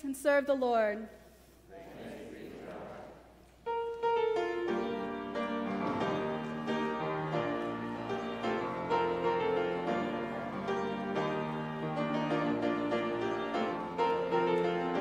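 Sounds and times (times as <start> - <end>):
piano melody over chords: 3.7 - 15.0.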